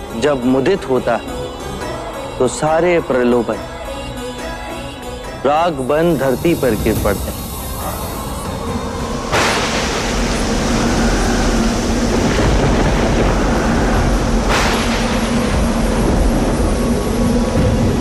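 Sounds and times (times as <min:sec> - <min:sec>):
dense wash of noise: 0:05.7 - 0:18.0
sudden whoosh: 0:06.2 - 0:18.0.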